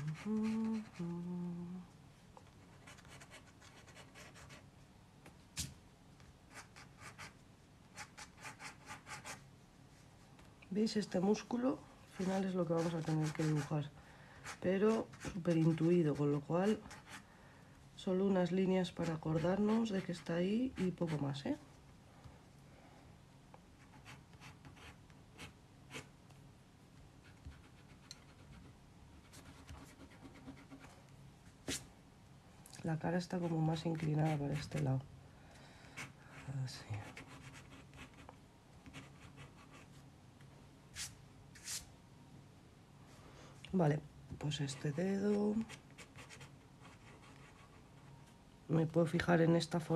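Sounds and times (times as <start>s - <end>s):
low steady hum: 0.0s - 49.9s
pencil sketching on paper: 12.2s - 13.8s.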